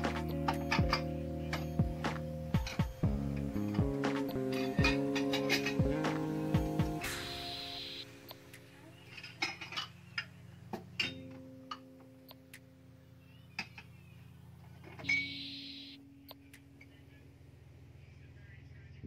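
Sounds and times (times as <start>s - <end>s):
soft background music: 0.0s - 19.0s.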